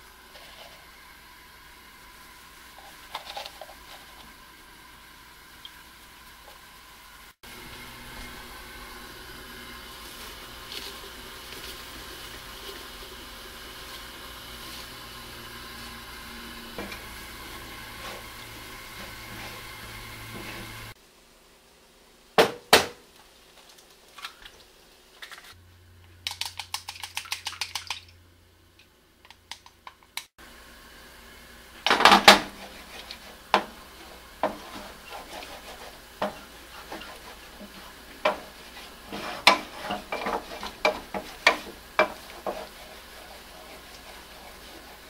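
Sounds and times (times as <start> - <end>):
spatula scraping a frying pan: 0.3 - 0.9, 16.7 - 21.0, 32.2 - 45.0
egg beaten in a bowl: 34.4 - 45.0.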